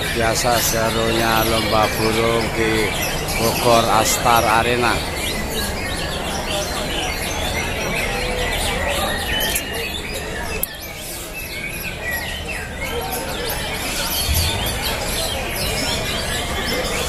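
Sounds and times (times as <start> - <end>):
songbirds chirping and trilling: 0.0 - 17.0
steady low rumble: 14.3 - 15.9.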